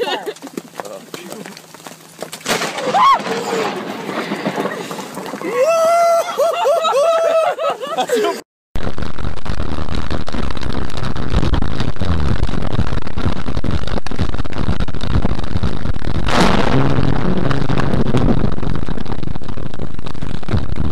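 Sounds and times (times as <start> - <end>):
distorted thunder crackle: 2.4 - 5.8, 8.8 - 20.9.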